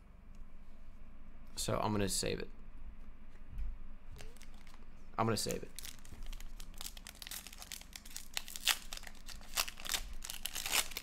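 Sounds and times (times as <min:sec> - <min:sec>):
foil wrapper crinkling: 0:04.2 - 0:11.0.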